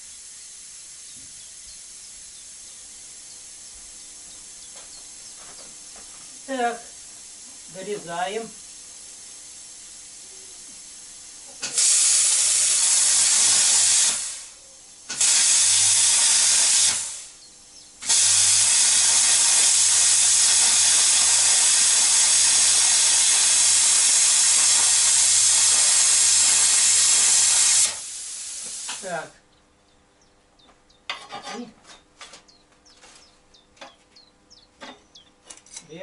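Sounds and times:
power tool cutting metal: 0:11.6 - 0:14.4, 0:15.1 - 0:17.3, 0:18.0 - 0:29.1.

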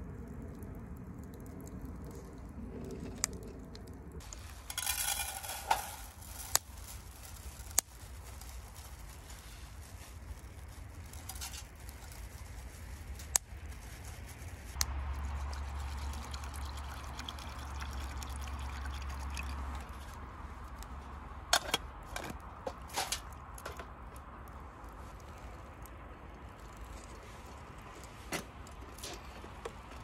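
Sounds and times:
water poured into metal tin: 0:15.3 - 0:20.0.

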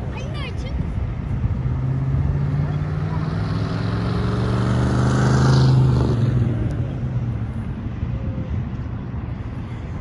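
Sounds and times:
truck driving past: 0:01.4 - 0:07.9.

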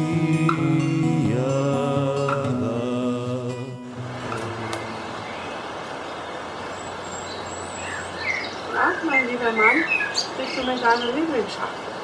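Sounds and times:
background hiss: 0:00.0 - 0:12.0
faint birds chirping: 0:04.2 - 0:12.0.

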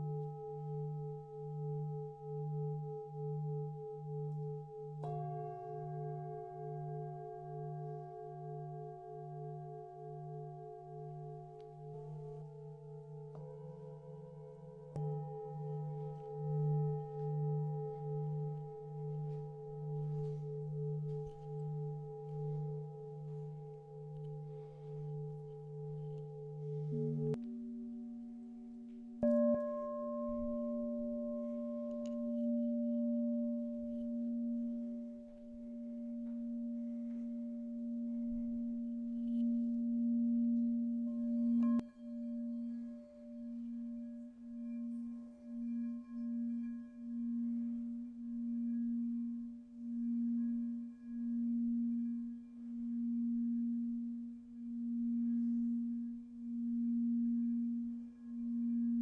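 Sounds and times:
singing bowl ringing: 0:00.0 - 0:59.0
singing bowl struck: 0:29.2 - 0:59.0.

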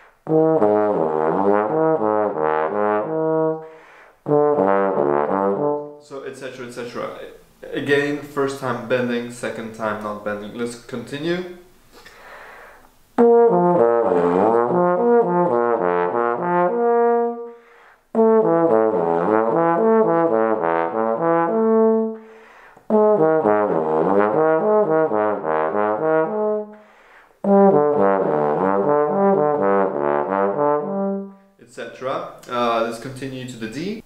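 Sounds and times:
bass trombone low notes: 0:00.2 - 0:03.6, 0:04.2 - 0:06.0, 0:13.2 - 0:17.6, 0:18.2 - 0:22.2, 0:22.9 - 0:26.8, 0:27.4 - 0:31.4.

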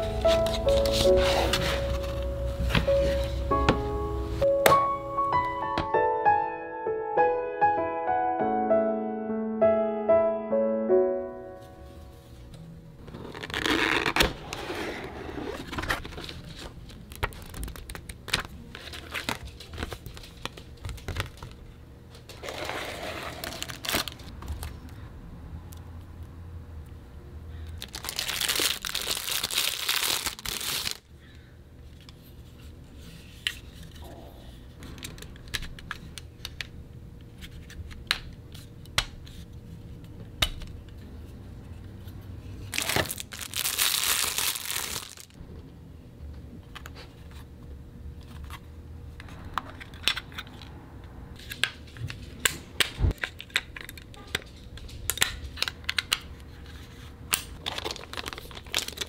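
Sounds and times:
plastic packaging crinkling: 0:16.0 - 0:21.6, 0:22.4 - 0:24.7, 0:27.8 - 0:31.1, 0:42.7 - 0:45.4, 0:57.6 - 0:59.0.

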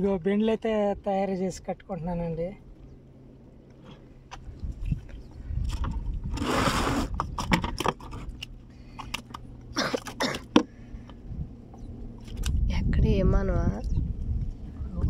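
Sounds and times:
rustling and scraping handling: 0:03.7 - 0:12.6.

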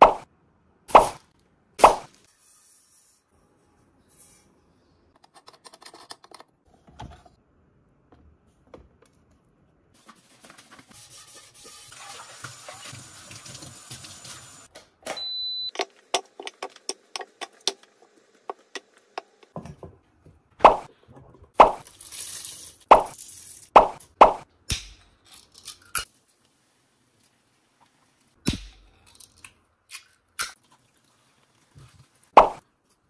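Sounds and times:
tap water running into pot: 0:11.9 - 0:14.6
brief beep: 0:15.2 - 0:15.7.

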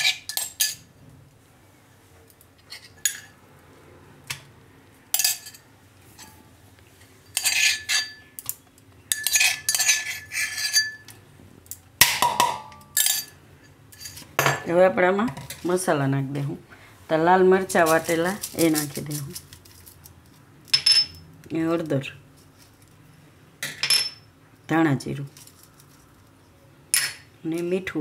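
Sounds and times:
metal spoon scraping steel bowl: 0:07.2 - 0:08.4, 0:09.1 - 0:11.2.

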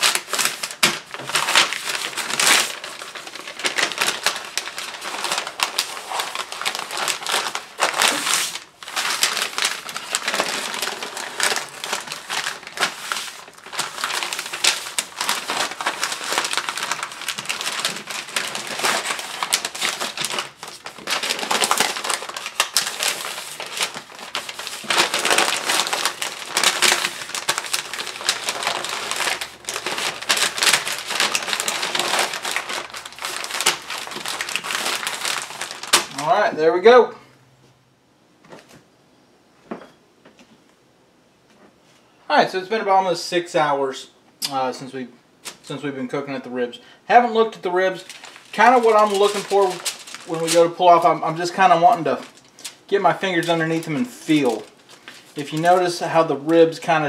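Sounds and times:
paper rustling and crinkling: 0:00.0 - 0:36.3, 0:47.6 - 0:57.0.

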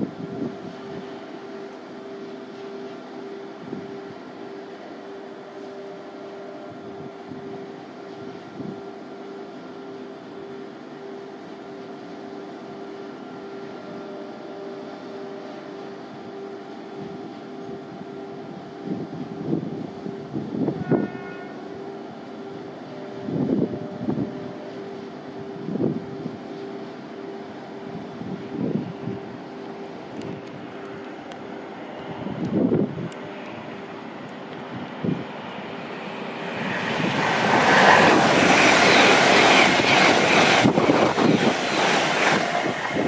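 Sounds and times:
electric train humming: 0:00.0 - 0:43.0
wind gusts on microphone: 0:27.8 - 0:29.4, 0:32.0 - 0:33.3, 0:34.6 - 0:35.4, 0:36.4 - 0:43.0.

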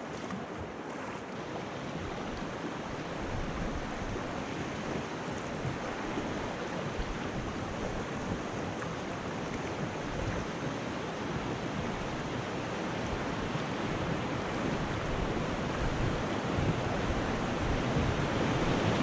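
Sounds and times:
paddle splashes: 0:00.0 - 0:19.0
river water rushing: 0:00.0 - 0:19.0
wind on microphone: 0:00.0 - 0:19.0.

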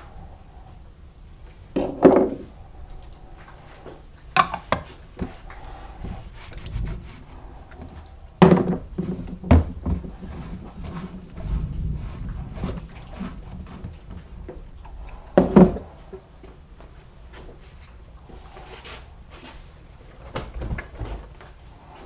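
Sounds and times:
paint can knocking and scraping: 0:03.9 - 0:16.3.

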